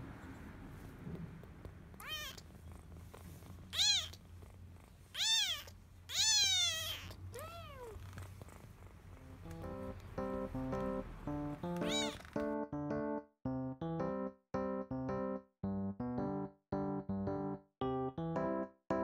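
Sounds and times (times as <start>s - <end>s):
kitten mewing: 1.9s - 2.9s, 3.6s - 4.3s, 5.1s - 9.4s, 11.7s - 12.3s.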